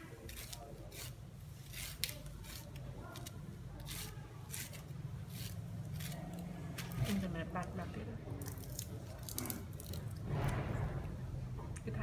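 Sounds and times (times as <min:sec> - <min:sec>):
knife scraping corn cob: 0:00.2 - 0:06.9.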